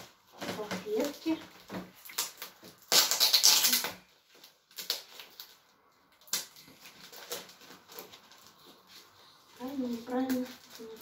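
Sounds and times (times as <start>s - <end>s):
paper wrapping rustling: 0.0s - 11.0s
tape ripping off paper: 0.3s - 5.6s, 6.2s - 9.0s.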